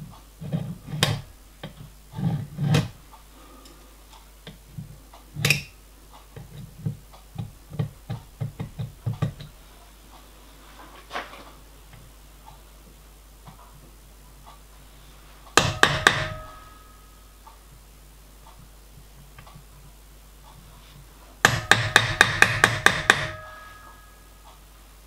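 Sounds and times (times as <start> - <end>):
light knocks and clicks of tools: 2.6 - 12.6.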